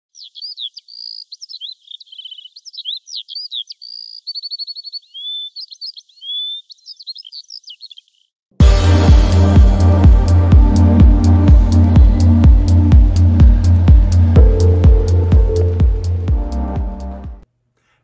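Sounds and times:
songbird singing: 0.0 - 8.4
electronic music with heavy beat: 8.6 - 17.4.

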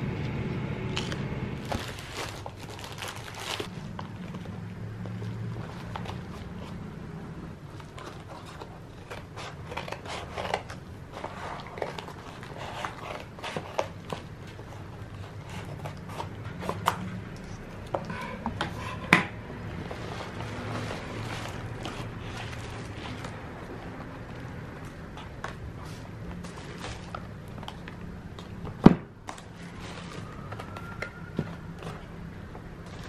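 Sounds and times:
plastic bag crinkling: 1.0 - 3.7, 19.8 - 25.0, 26.3 - 28.1
scissors cutting plastic: 7.7 - 19.3.

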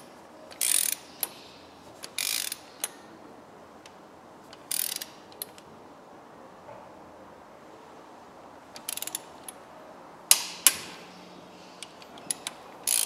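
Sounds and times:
torque wrench ratchet clicking: 0.5 - 1.4, 2.0 - 3.0, 4.6 - 5.6, 8.8 - 9.3, 11.8 - 13.0.

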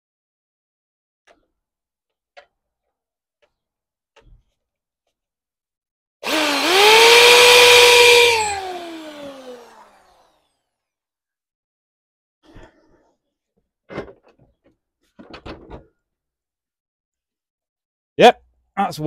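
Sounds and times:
electric drill whining: 6.2 - 10.6.

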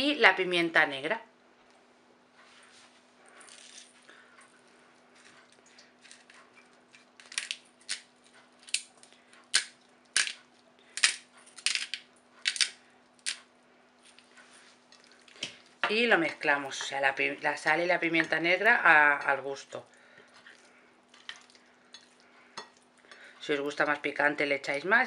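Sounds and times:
pepper mill grinding: 5.2 - 13.5.

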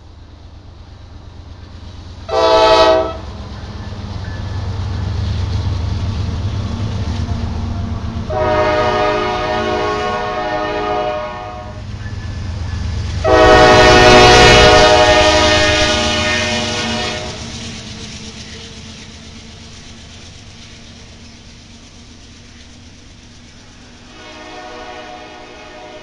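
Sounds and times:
train rumbling on rails: 0.0 - 26.0
locomotive air horn blasts: 2.3 - 3.2, 8.3 - 11.8, 13.2 - 17.4, 24.1 - 26.0.

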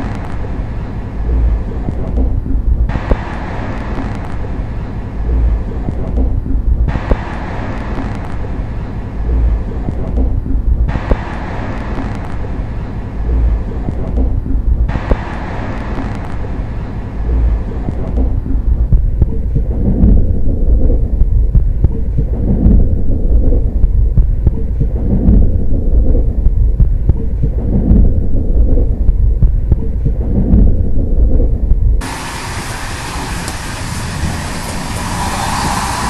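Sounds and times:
train rumbling at speed: 32.0 - 36.0.

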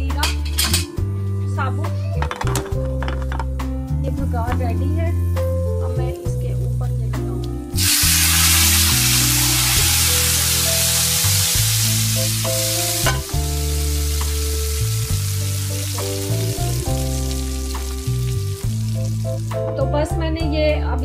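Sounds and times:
background music: 0.0 - 21.0
hot oil sizzling: 7.8 - 19.6.

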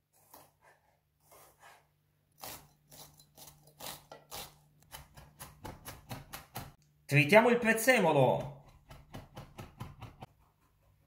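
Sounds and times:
knife chopping on wooden board: 4.8 - 6.8, 8.4 - 10.4.

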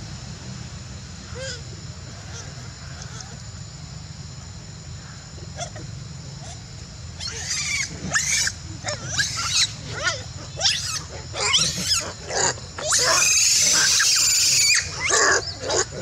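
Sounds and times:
monkeys screeching: 7.2 - 16.0.

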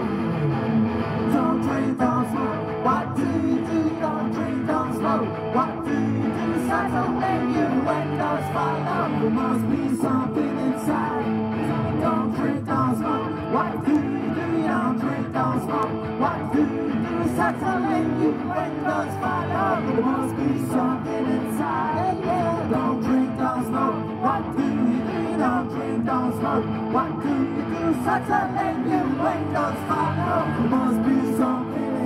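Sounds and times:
electric guitar: 0.0 - 32.0
person singing: 1.2 - 32.0.

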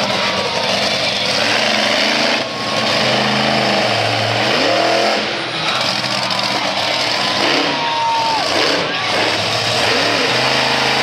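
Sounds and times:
monster truck engine revving: 0.0 - 11.0.

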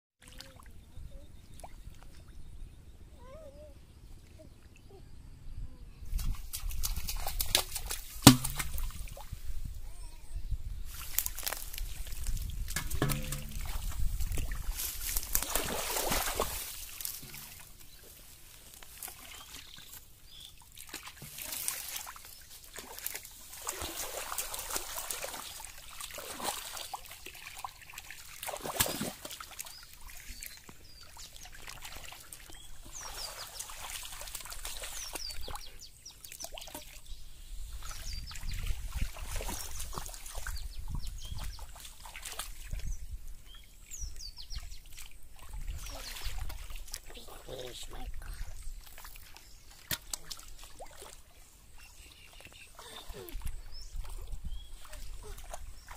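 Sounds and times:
water splashing and sloshing: 0.2 - 0.8, 6.1 - 9.8, 10.9 - 55.9
fish thrashing at surface: 7.6 - 9.2, 12.7 - 17.7.

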